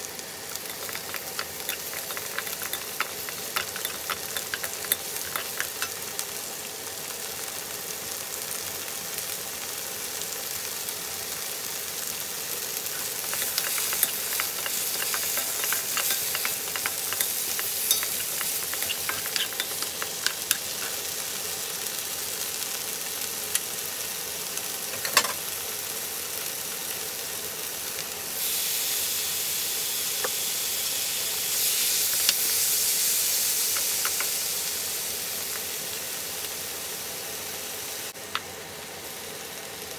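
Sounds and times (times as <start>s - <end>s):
food sizzling in a wok: 0.0s - 39.9s
wooden spatula clicks and scrapes: 0.7s - 6.0s, 12.9s - 21.1s.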